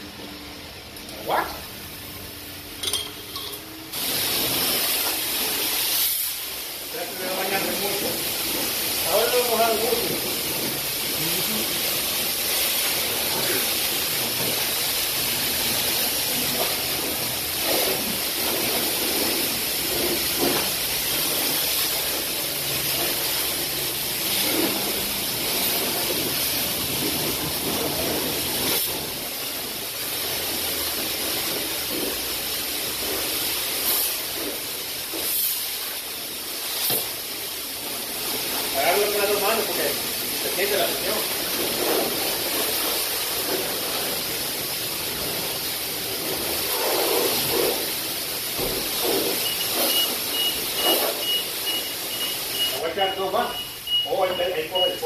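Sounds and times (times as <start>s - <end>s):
pressure washer spray hissing: 3.9s - 55.0s.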